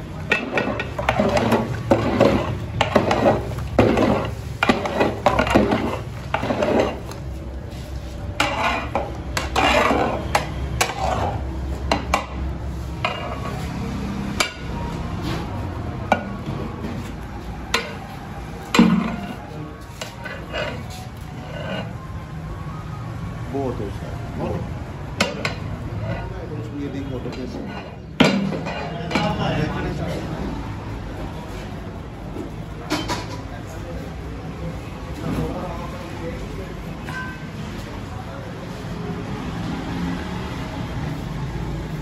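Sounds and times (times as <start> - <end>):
metal ladle scraping a pot: 0.2 - 13.8, 18.7 - 22.2, 25.2 - 26.4, 27.3 - 29.4.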